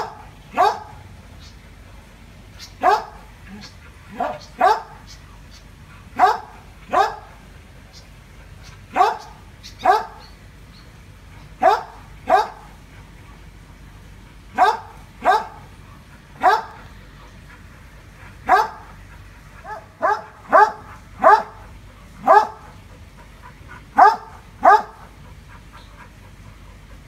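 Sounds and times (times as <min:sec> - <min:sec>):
dog barking: 0:00.0 - 0:01.0, 0:02.8 - 0:03.2, 0:04.1 - 0:05.0, 0:06.2 - 0:07.4, 0:08.9 - 0:10.3, 0:11.6 - 0:12.8, 0:14.5 - 0:15.7, 0:16.4 - 0:16.8, 0:18.4 - 0:18.9, 0:19.6 - 0:22.7, 0:24.0 - 0:25.1.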